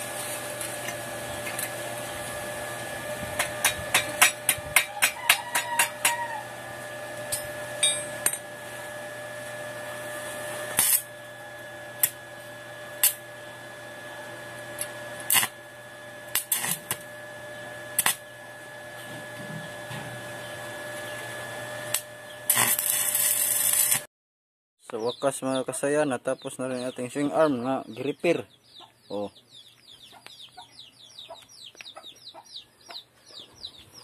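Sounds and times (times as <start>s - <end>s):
welding arc crackling: 0.0s - 19.1s, 19.7s - 24.1s
steady hum: 0.0s - 24.1s.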